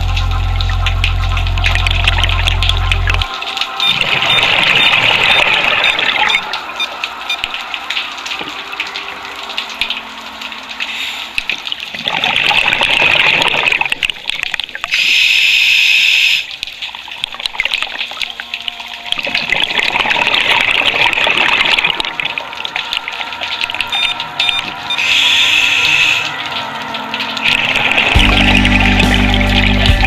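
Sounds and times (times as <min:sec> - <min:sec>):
bubbling exhales underwater: 0:00.0 - 0:15.2, 0:19.1 - 0:30.0
regulator air hiss: 0:14.9 - 0:16.5, 0:25.0 - 0:26.3.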